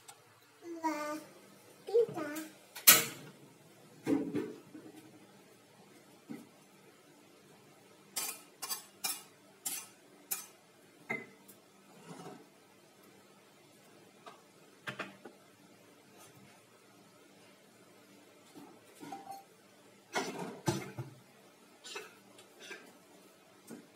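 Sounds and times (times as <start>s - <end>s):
metal cookware clanking: 2.8s - 3.3s.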